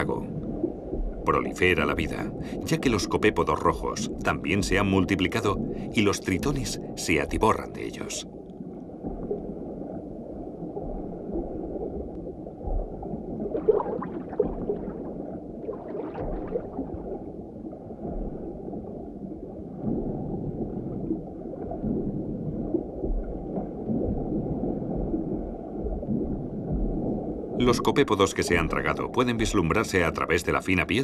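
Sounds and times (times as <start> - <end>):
muffled underwater noise: 1.3 - 8.3
water spurts: 13.4 - 17.3.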